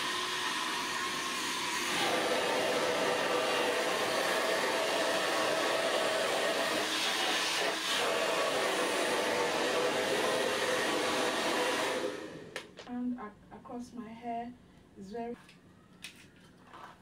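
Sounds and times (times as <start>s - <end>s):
hair dryer blowing: 0.0s - 12.8s.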